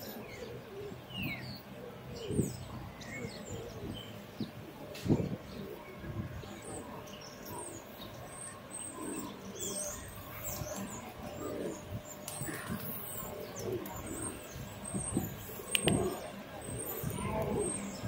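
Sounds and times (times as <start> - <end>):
low city hum: 0.0 - 18.0
pigeons cooing: 0.0 - 18.0
small birds chirping: 0.0 - 18.0.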